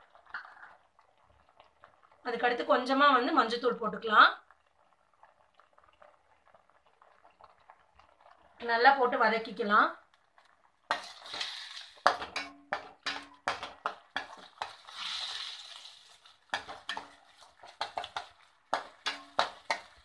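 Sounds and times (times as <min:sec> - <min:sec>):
paste sizzling: 0:10.4 - 0:20.0
ladle scraping a steel pan: 0:16.5 - 0:20.0.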